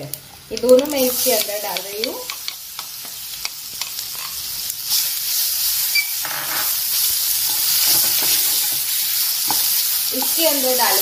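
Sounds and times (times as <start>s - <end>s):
food sizzling in hot oil: 0.0s - 11.0s
wooden spatula stirring in pan: 7.0s - 11.0s.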